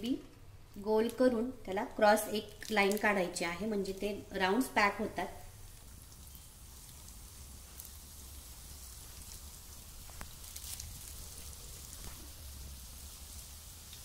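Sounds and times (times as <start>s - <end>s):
batter sizzling in hot oil: 0.4s - 14.0s.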